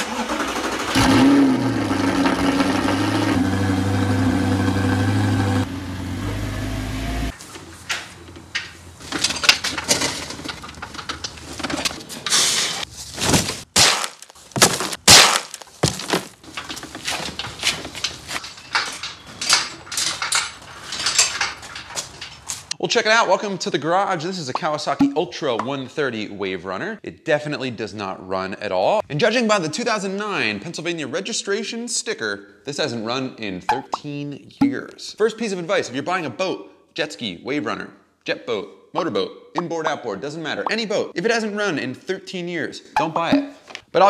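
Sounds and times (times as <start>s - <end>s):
car engine starting and idling: 0.0s - 7.4s
knocks and clatters handling noises: 7.4s - 22.8s, 43.4s - 43.9s.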